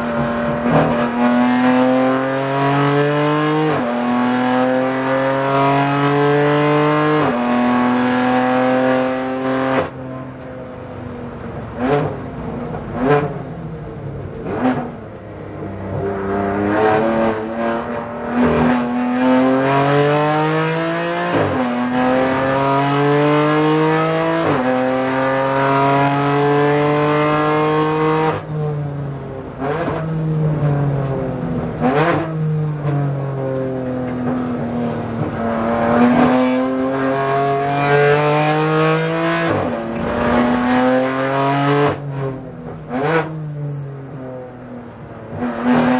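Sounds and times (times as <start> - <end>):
race car engine accelerating: 0.0 - 10.0, 15.8 - 28.5, 34.3 - 43.5.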